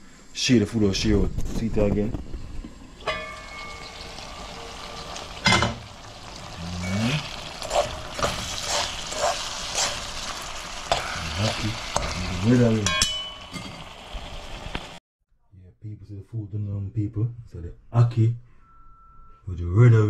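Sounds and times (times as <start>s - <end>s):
food sizzling in a frying pan: 2.9s - 15.0s
utensil scraping a pan: 6.7s - 12.2s.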